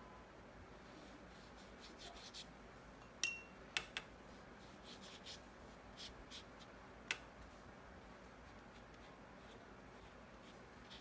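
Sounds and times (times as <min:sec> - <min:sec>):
paintbrush swishing on paper: 0:00.8 - 0:02.6, 0:04.2 - 0:06.7, 0:07.4 - 0:11.0.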